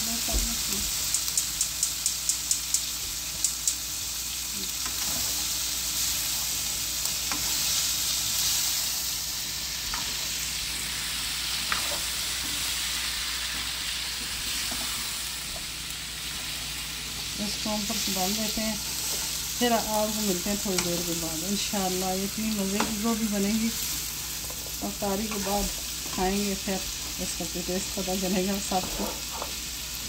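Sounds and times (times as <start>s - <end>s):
vegetables sizzling in hot oil: 0.0s - 30.0s
spatula stirring in wok: 4.8s - 8.9s, 24.0s - 26.2s.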